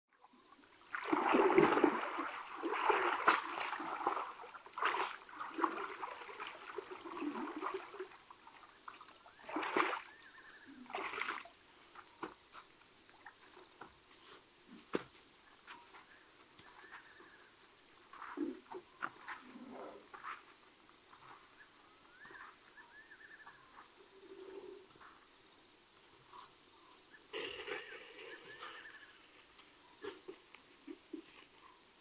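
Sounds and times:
hippopotamus splashing in water: 0.8s - 11.6s.

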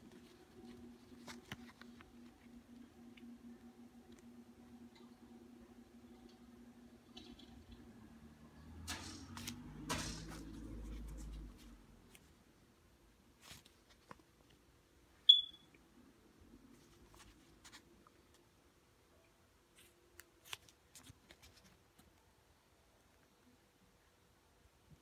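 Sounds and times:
banknotes rustling: 8.8s - 12.2s
short high chirp: 15.3s - 15.7s.

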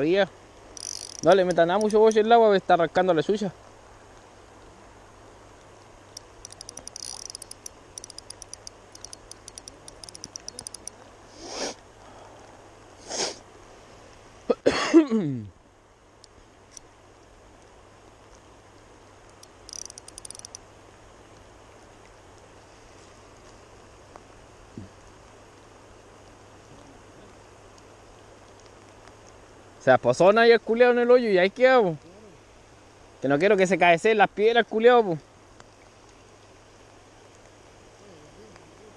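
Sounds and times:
fishing reel clicking rapidly: 0.8s - 2.2s, 6.2s - 10.9s, 19.4s - 20.6s.

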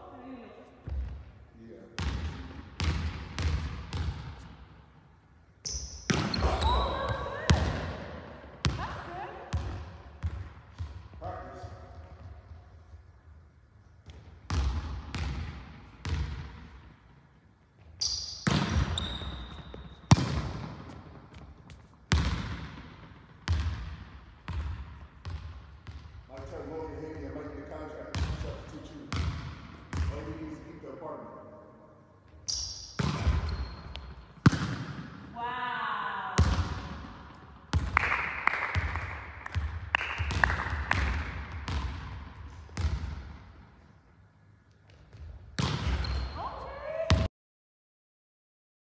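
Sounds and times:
volleyball smacks echoing in hall: 1.9s - 4.8s, 5.7s - 12.0s, 14.0s - 17.0s, 18.3s - 26.2s, 32.3s - 35.4s, 36.2s - 43.8s, 44.8s - 47.3s.

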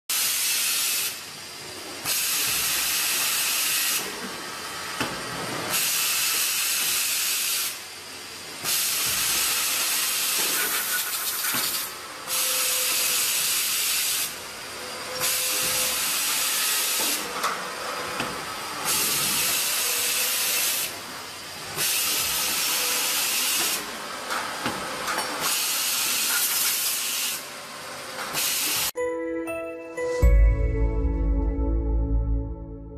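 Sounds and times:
machine air hiss: 0.1s - 4.2s, 5.7s - 14.4s, 18.9s - 21.0s, 21.7s - 23.9s, 25.4s - 27.5s.

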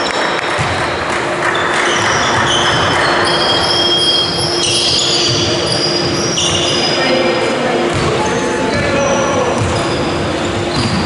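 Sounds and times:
basketball bouncing: 0.0s - 6.6s, 7.9s - 8.2s, 9.6s - 9.9s, 10.7s - 11.0s
shoes squeaking on wooden court: 0.0s - 7.3s, 7.9s - 11.0s.

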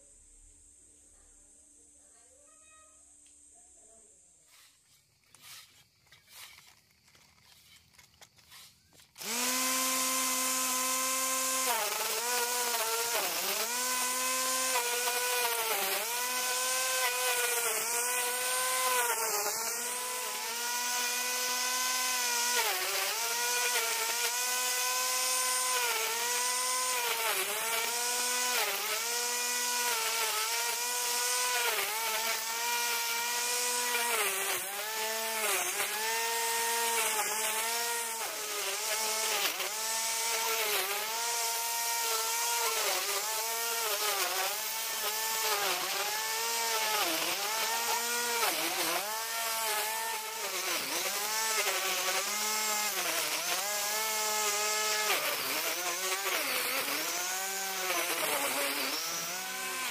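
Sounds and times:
angle grinder cutting grass: 4.4s - 59.9s.

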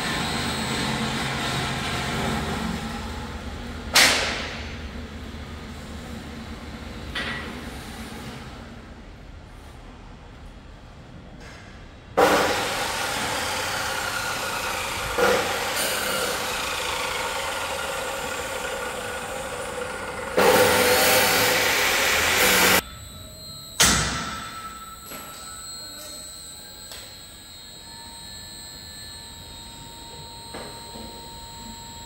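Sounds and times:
loud grinding machinery: 0.0s - 3.8s, 12.2s - 32.0s
faint steady whine: 21.2s - 32.0s.

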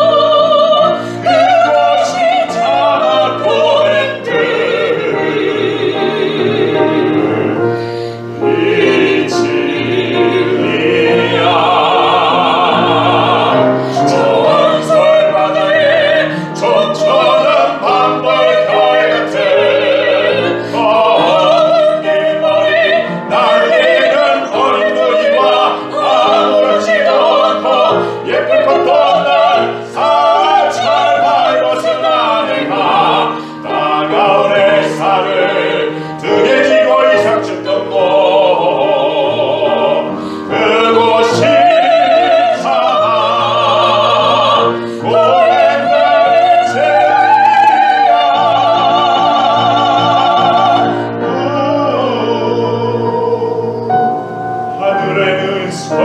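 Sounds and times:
operatic singing: 0.0s - 56.0s
piano: 0.0s - 56.0s.

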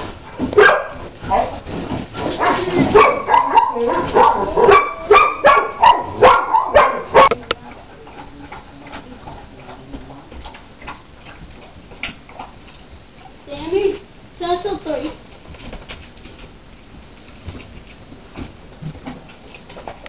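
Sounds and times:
puppies barking: 0.4s - 1.6s, 2.2s - 7.4s.

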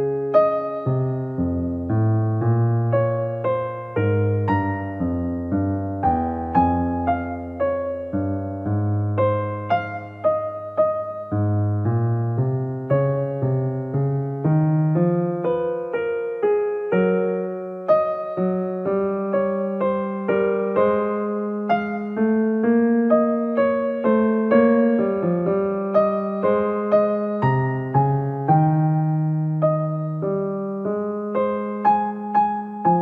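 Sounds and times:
slow piano music: 0.0s - 33.0s.

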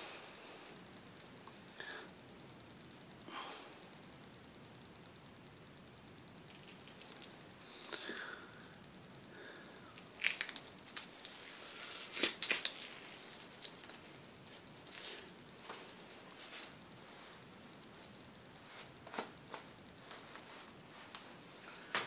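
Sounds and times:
crinkling handling noise: 6.5s - 8.0s, 9.9s - 22.0s.

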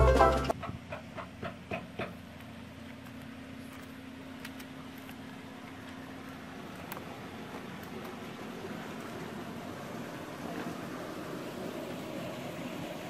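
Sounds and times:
banjo music: 0.0s - 0.5s
outdoor hiss: 2.1s - 13.0s.

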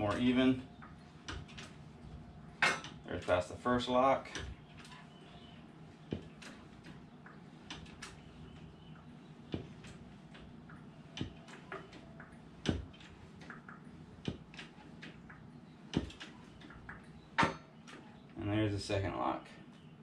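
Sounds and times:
lift pedal clunks: 15.9s - 18.1s.

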